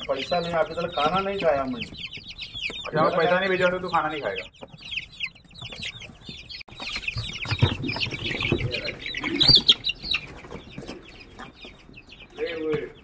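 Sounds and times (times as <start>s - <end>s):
chicks peeping: 0.0s - 13.0s
knocks and scuffling: 4.6s - 13.0s.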